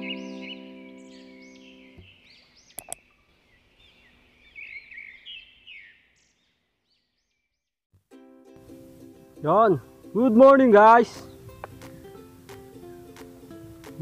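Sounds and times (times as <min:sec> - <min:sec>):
small birds chirping: 0:00.0 - 0:07.8, 0:10.9 - 0:14.0
sharp clicks: 0:02.8 - 0:03.0.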